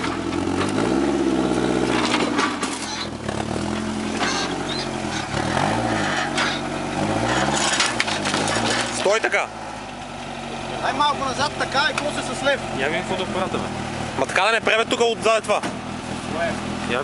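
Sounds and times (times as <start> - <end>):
engine revving in low gear: 0.0 - 9.5.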